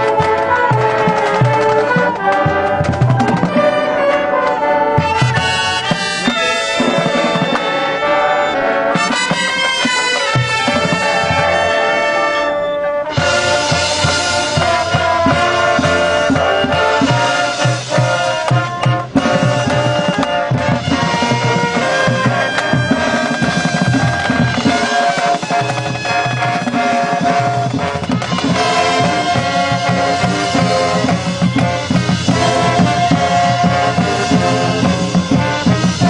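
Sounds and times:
marching band brass chords: 0:00.0 - 0:36.0
drum hits: 0:13.2 - 0:36.0.

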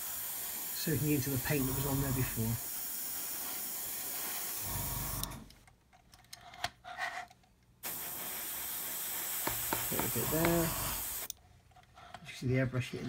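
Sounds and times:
airbrush hissing: 0:00.0 - 0:05.3, 0:07.8 - 0:11.3.

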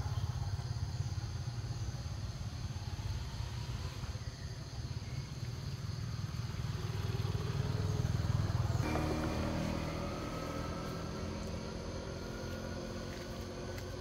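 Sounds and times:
vehicle engine running: 0:05.4 - 0:14.0.

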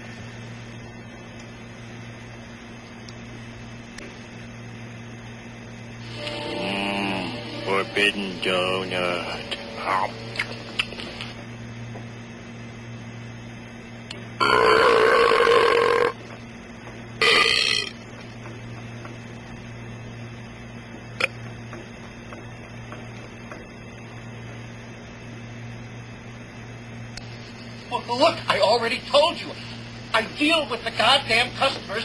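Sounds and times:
steady low hum: 0:00.0 - 0:32.0
recorded burp through small speaker: 0:14.4 - 0:16.2, 0:17.2 - 0:18.0.

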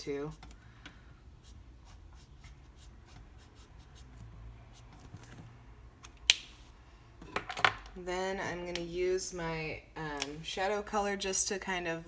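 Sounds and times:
marker strokes on paper: 0:01.4 - 0:05.3.

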